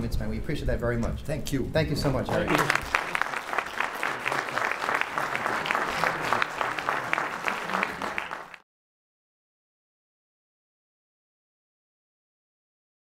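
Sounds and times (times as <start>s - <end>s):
audience applauding: 2.3s - 8.6s.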